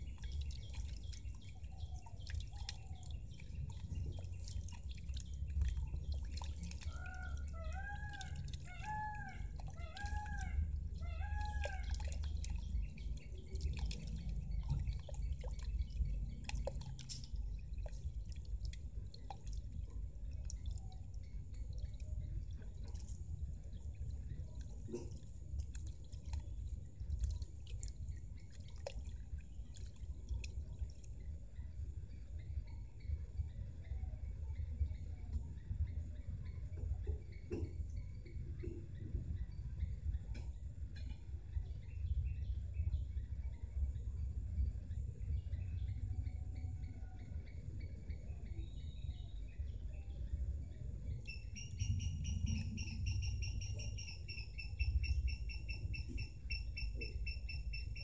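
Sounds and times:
fountain splashing into pond: 0.0 - 31.2
bird calling: 6.9 - 12.3, 51.3 - 58.0.

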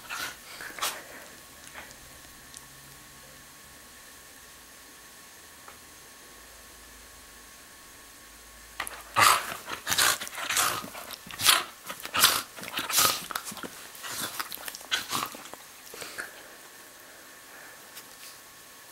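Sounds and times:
dog growling and snorting: 8.8 - 16.3.

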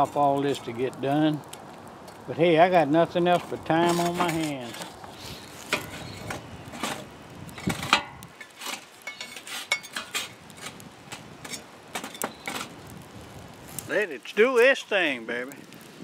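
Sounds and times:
metal tongs scraping charcoal: 0.0 - 14.0
metal charcoal chimney knocks: 7.6 - 8.2.

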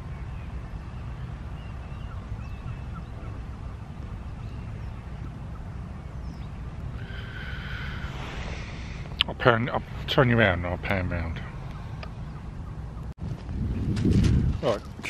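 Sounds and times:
faint bird calls: 0.0 - 9.9
steady low rumble: 0.0 - 15.0.

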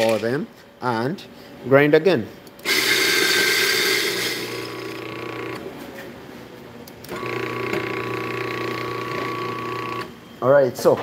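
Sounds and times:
coffee grinder motor humming: 2.6 - 5.6, 7.1 - 10.1.

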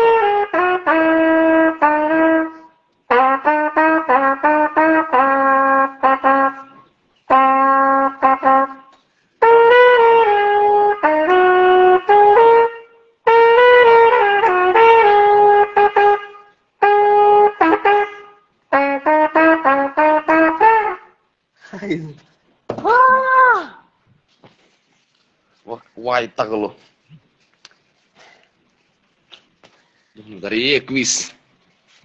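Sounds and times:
solo trumpet melody: 0.0 - 21.3.

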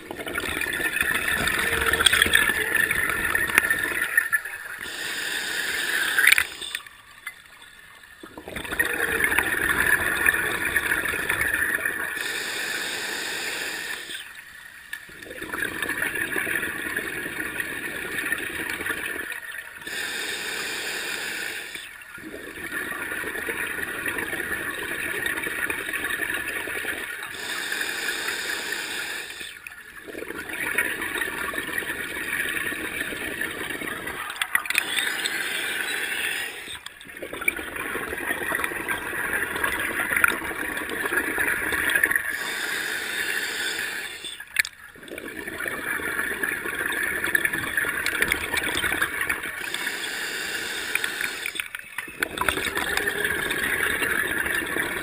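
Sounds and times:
gurgle of exhaled bubbles: 0.0 - 4.9, 8.2 - 12.2, 15.1 - 19.8, 21.7 - 27.4, 29.9 - 42.5, 44.0 - 50.0, 50.8 - 55.0
hissing regulator inhale: 4.8 - 6.9, 12.1 - 14.3, 19.8 - 22.4, 27.2 - 30.3, 33.0 - 36.9, 41.9 - 44.6, 49.6 - 54.2.

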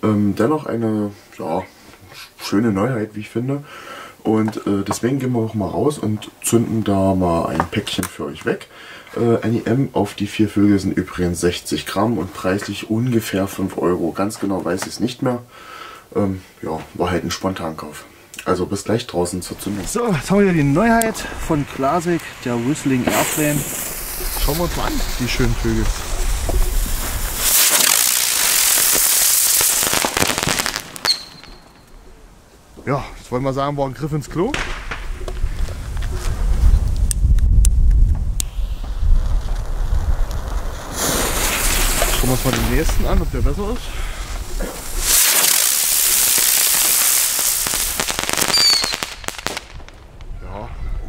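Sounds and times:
crackle of sparks: 17.0 - 32.1, 32.8 - 50.5
firework rushing hiss: 19.0 - 32.1, 34.4 - 50.2
fuse fizzing: 19.4 - 30.2, 38.4 - 48.1
sharp pop: 30.0 - 31.7, 34.5 - 35.6
falling whistle: 31.0 - 31.9, 48.5 - 49.0.

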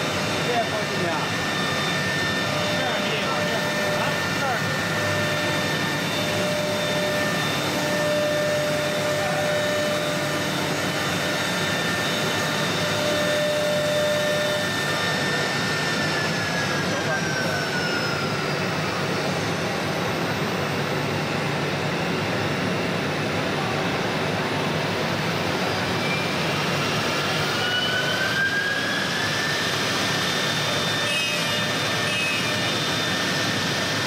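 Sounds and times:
router cutting wood: 0.0 - 18.3, 27.4 - 34.0
high machine whine: 0.0 - 34.0.

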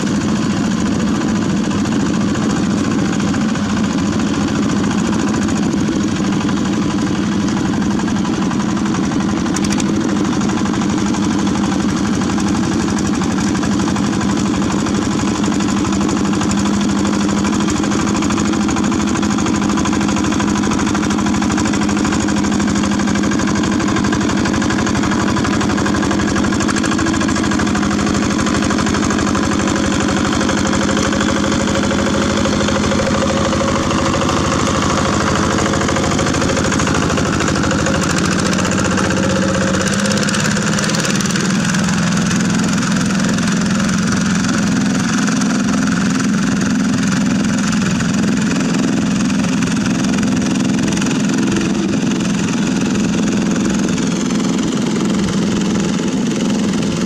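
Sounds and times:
diesel engine running: 0.0 - 57.0
tiller churning mud: 0.0 - 57.0.

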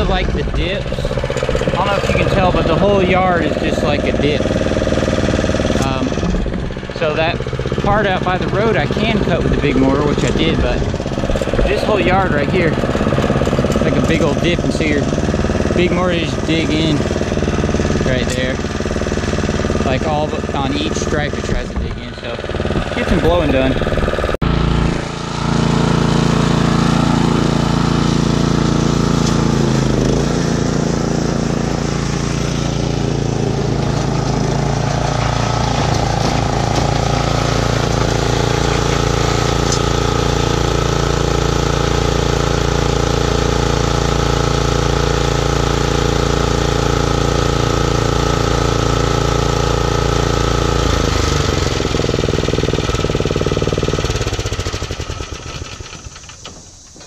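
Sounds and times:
leaf blower engine idling: 0.0 - 57.0.

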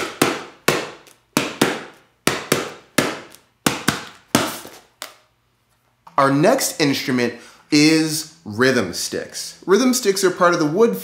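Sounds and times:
hand slapping cardboard box: 0.0 - 5.2.

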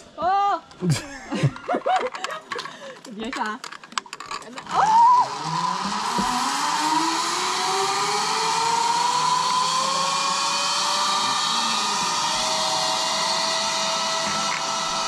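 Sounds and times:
zipline pulleys whining on cable: 4.2 - 15.0.

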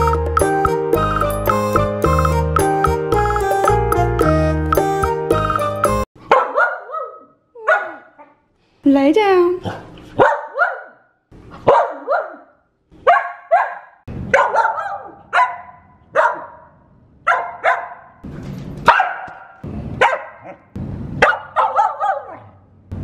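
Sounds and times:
dog barking: 6.2 - 8.4, 9.6 - 18.2, 18.9 - 22.6.

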